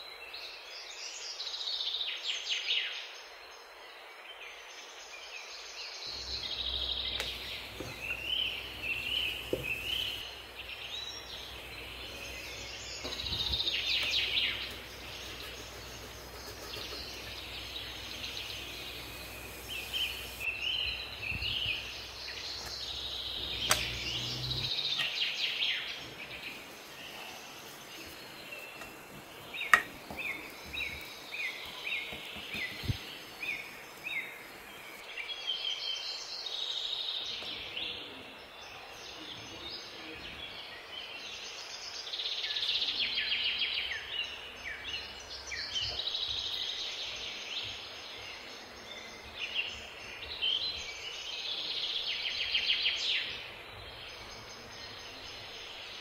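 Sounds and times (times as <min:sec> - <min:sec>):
small birds chirping: 0:05.2 - 0:56.0.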